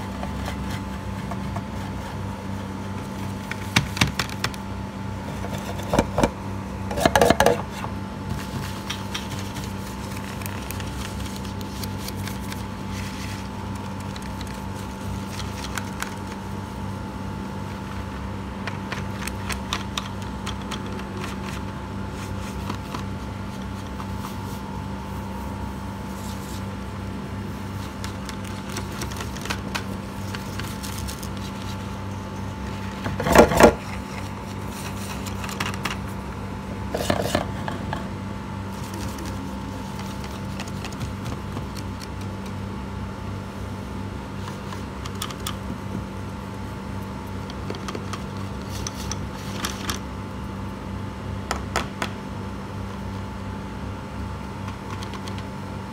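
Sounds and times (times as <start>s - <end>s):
steady machine hum: 0.0s - 55.9s
pencils clicking and tapping: 3.4s - 4.6s, 8.6s - 16.4s, 18.6s - 21.8s, 27.8s - 31.8s, 33.1s - 36.0s, 38.8s - 42.6s, 44.4s - 45.7s, 47.4s - 50.0s, 54.6s - 55.5s.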